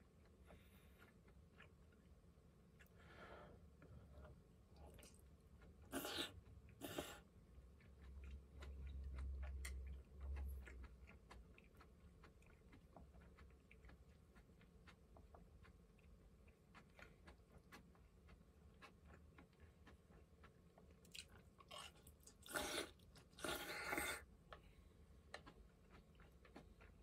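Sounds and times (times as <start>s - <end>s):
person chewing food: 0.0s - 27.0s
slurping broth: 5.9s - 7.2s, 22.5s - 24.2s.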